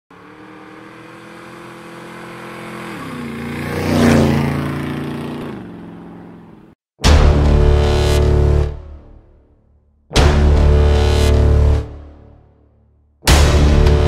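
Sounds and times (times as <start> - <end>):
motorcycle engine passing by: 0.1 - 6.7.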